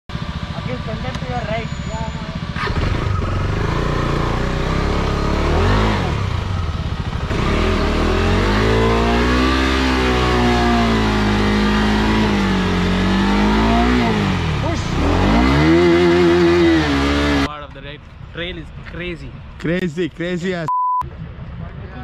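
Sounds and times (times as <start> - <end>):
motorcycle engine revving: 0.1 - 17.6.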